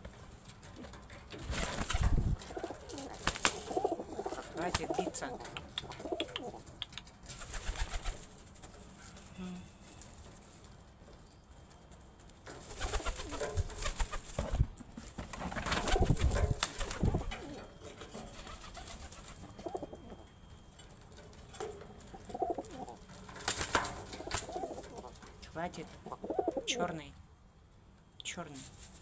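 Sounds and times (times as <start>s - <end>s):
pigeons cooing: 0.7s - 6.8s, 15.6s - 20.3s, 21.5s - 25.3s, 26.0s - 26.9s
pigeon wings flapping: 1.4s - 5.2s, 7.3s - 8.4s, 12.6s - 17.5s, 22.4s - 24.9s.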